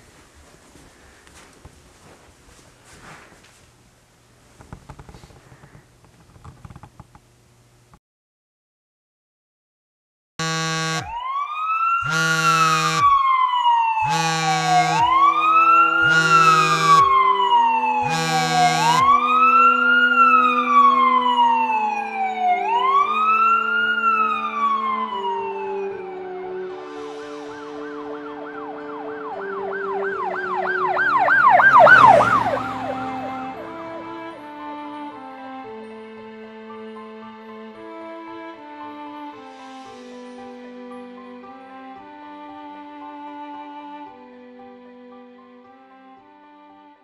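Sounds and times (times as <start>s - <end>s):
short loud siren blasts: 10.4s - 34.4s
siren wailing: 10.4s - 35.4s
fast siren yelp: 10.5s - 34.2s
held musical notes: 12.0s - 46.7s.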